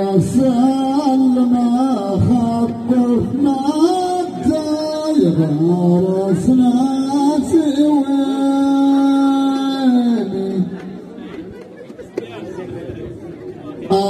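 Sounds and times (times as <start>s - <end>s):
man singing unaccompanied: 0.0s - 10.8s.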